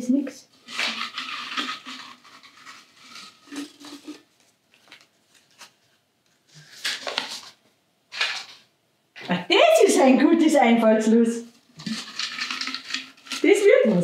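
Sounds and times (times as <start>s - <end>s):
paper slips rustling: 6.6s - 8.7s.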